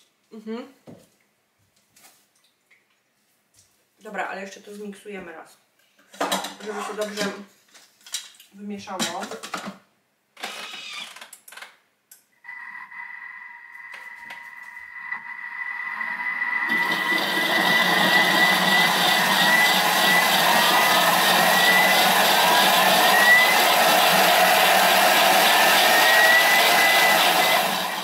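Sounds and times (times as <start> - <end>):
electric blender running: 12.9 - 28.0.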